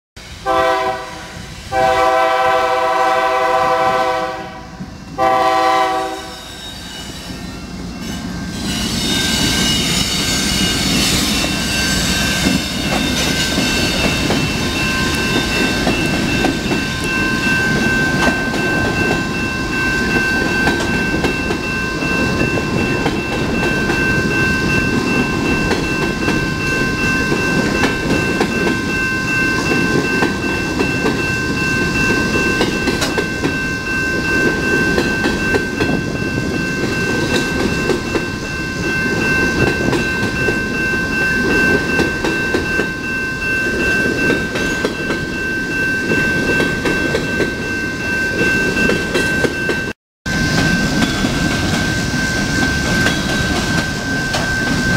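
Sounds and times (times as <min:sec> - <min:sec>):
locomotive horn blasts: 0:00.4 - 0:06.4
high-pitched ringing: 0:04.8 - 0:54.9
train wheels clickety-clack: 0:08.0 - 0:42.9, 0:43.7 - 0:45.4, 0:46.0 - 0:47.7, 0:48.3 - 0:54.9.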